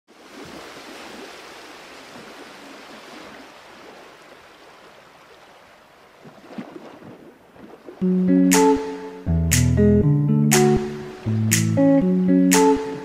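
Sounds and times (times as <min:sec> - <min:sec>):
distant sea surf: 0:08.0 - 0:13.0.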